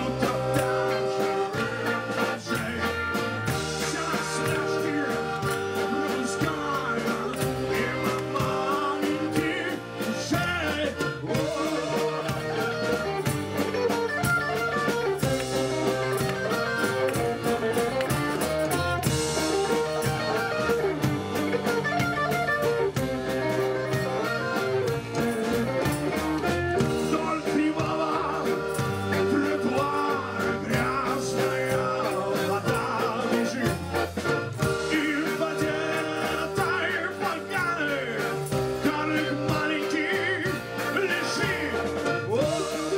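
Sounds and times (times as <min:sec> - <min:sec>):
man singing: 0:00.0 - 0:13.4, 0:26.4 - 0:42.9
accordion: 0:00.0 - 0:42.9
drum kit: 0:00.0 - 0:42.9
electric guitar: 0:00.0 - 0:42.9
upright bass: 0:00.0 - 0:42.9.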